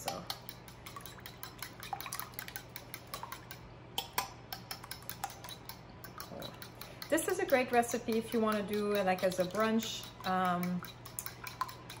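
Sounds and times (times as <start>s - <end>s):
fork beating eggs in bowl: 0.0s - 12.0s.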